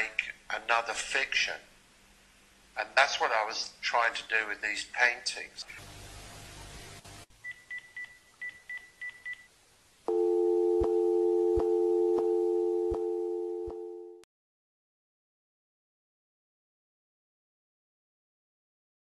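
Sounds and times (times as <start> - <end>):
two-note dial tone: 10.1 - 14.2.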